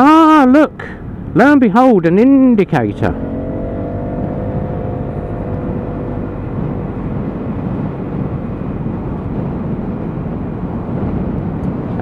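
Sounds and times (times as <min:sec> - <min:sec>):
wind rush: 0:00.0 - 0:12.0
scooter engine running: 0:02.9 - 0:08.0.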